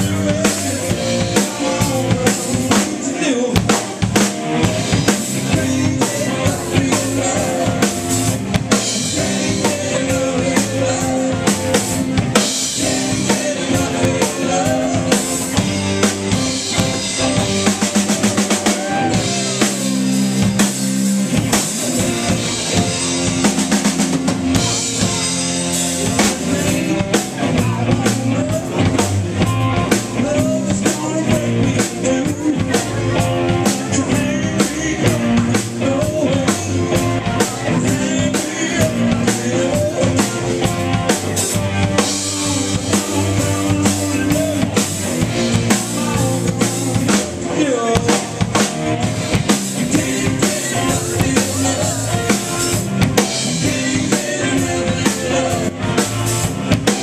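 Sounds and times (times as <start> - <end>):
drum kit beat: 0.0 - 57.0
live band playing: 0.0 - 57.0.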